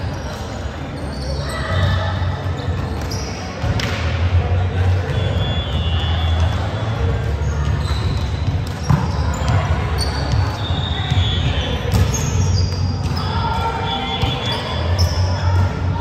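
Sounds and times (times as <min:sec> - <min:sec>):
sneakers squeaking on court: 0:00.0 - 0:04.1, 0:05.1 - 0:15.5
players' voices in hall: 0:00.0 - 0:16.0.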